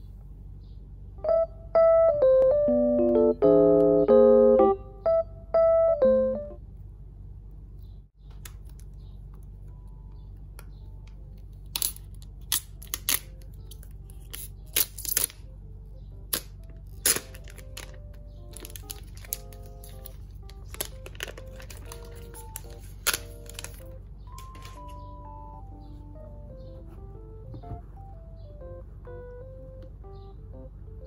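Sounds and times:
faint soft music: 0:00.0 - 0:06.8, 0:07.7 - 0:31.0
low steady hum: 0:00.0 - 0:31.0
piano phrase: 0:01.2 - 0:06.6, 0:15.4 - 0:31.0
plastic wrap crinkling: 0:17.0 - 0:25.0.

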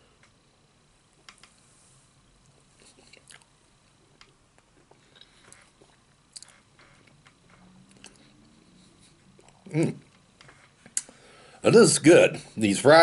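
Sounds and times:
person chewing food: 0:02.4 - 0:06.6, 0:07.8 - 0:08.6.

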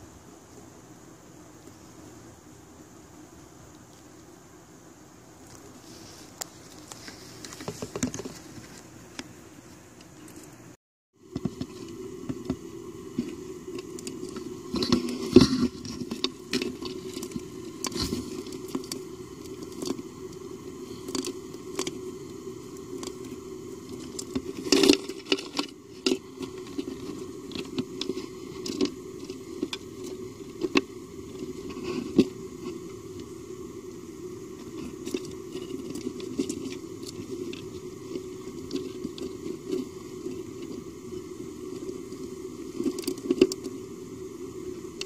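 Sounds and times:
insect chewing with crunching: 0:05.4 - 0:08.9, 0:11.3 - 0:43.9
clicks and scrapes: 0:11.4 - 0:20.1, 0:22.8 - 0:33.0.

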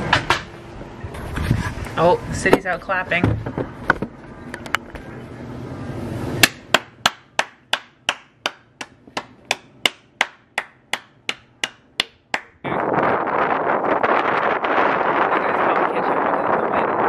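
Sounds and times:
wind buffeting microphone: 0:00.8 - 0:04.5, 0:12.2 - 0:17.0
person clapping hands: 0:09.2 - 0:12.6.

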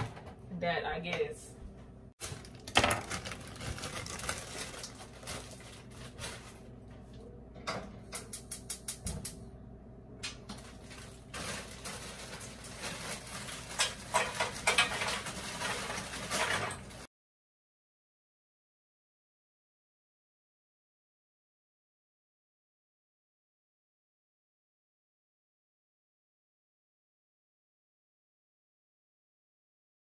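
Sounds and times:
cookware clattering: 0:13.8 - 0:16.9.

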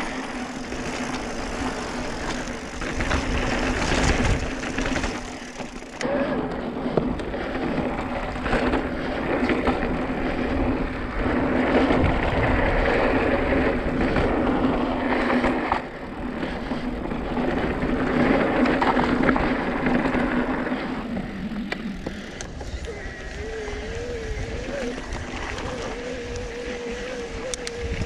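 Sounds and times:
bike rattling and clicking: 0:00.0 - 0:28.0
bike tyres rolling on rock: 0:00.0 - 0:28.0.

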